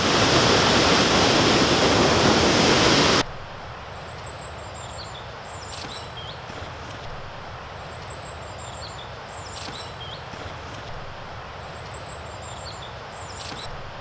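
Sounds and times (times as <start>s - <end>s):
distant river rushing: 0.0s - 14.0s
waterfall rushing: 0.0s - 14.0s
small birds chirping: 3.9s - 13.8s.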